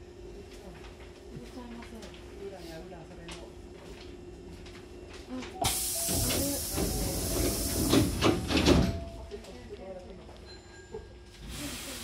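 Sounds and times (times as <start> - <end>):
loud hiss of air: 5.6 - 8.5, 11.5 - 12.0
train doors knocking shut: 5.6 - 9.2.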